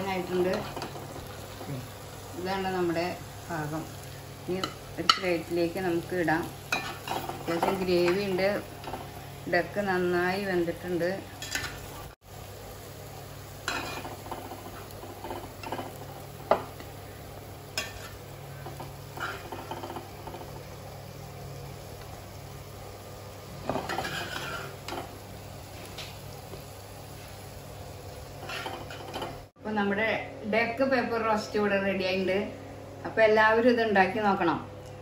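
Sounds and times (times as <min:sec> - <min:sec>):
spoon scraping and clinking on pot: 0:23.8 - 0:25.1.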